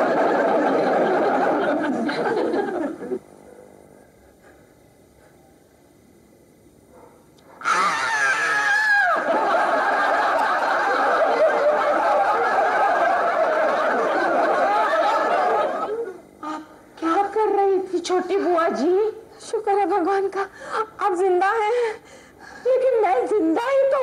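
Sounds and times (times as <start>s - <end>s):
woman wailing: 7.6s - 9.4s.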